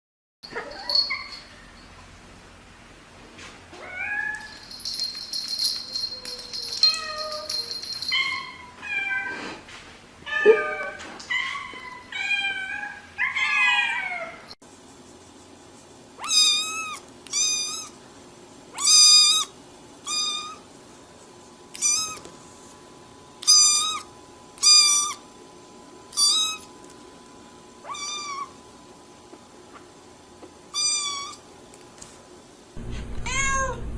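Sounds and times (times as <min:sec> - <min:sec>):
cats meowing: 0:10.3 - 0:14.5, 0:16.2 - 0:18.0, 0:21.8 - 0:22.2, 0:27.8 - 0:28.6, 0:33.1 - 0:33.9.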